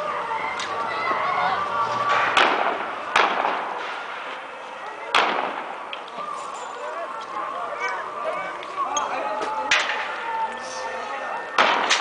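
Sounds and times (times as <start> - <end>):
gunshots with echo: 2.2 - 4.3, 5.1 - 5.9, 11.6 - 12.0.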